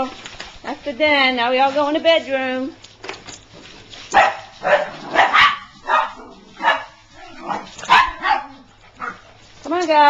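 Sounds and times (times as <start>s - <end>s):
small dogs barking: 4.1s - 9.3s.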